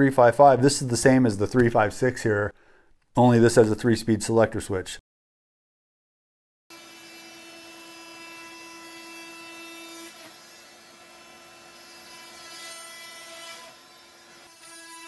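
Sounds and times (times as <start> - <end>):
multi-tool cutting wood: 6.7 - 15.0.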